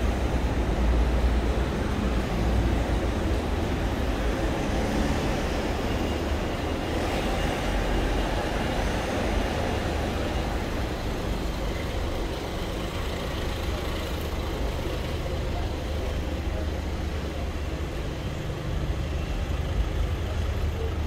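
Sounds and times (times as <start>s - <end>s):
road traffic rumble: 0.0s - 21.0s.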